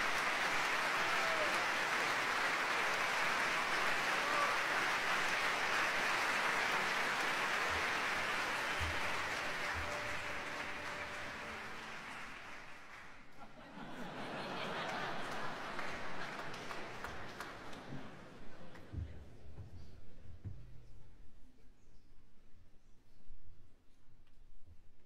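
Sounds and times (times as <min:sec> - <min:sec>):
audience applauding: 0:00.0 - 0:18.9.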